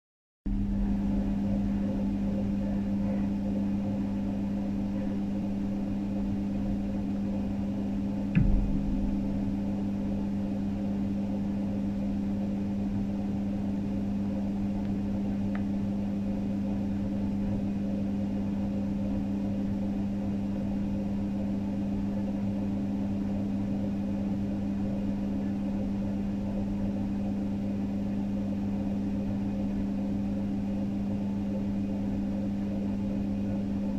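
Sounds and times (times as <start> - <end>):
machine hum: 0.5 - 18.0
knock: 8.4 - 9.6.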